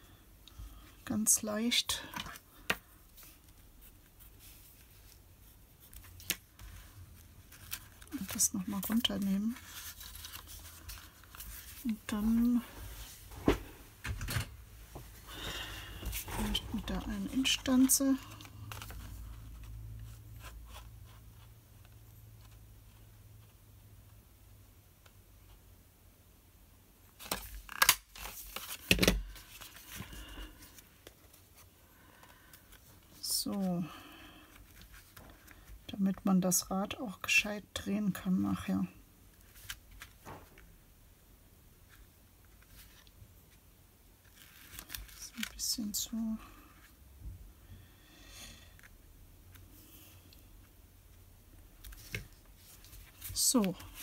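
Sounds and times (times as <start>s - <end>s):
paper rustling: 2.2s - 13.6s, 44.2s - 45.6s.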